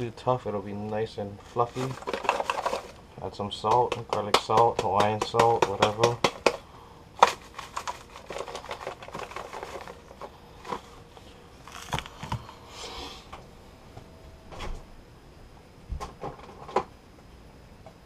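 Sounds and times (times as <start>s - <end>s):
shaker rattling over metal bowl: 1.4s - 3.0s.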